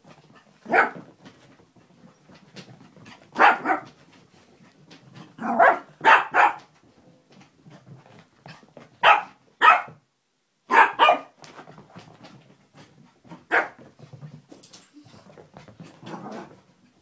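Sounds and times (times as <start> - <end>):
small dog barking: 0.6 - 1.0, 3.4 - 3.9, 5.4 - 6.7, 9.0 - 10.0, 10.7 - 11.4, 13.5 - 13.8.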